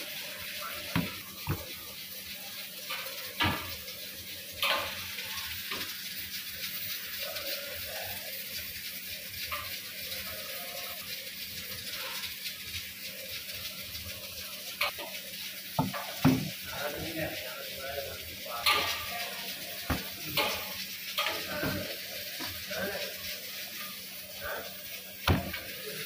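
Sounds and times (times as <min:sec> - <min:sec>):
dough knocking on steel worktop: 0:00.9 - 0:01.7, 0:15.8 - 0:16.6, 0:19.9 - 0:20.6, 0:25.3 - 0:25.6.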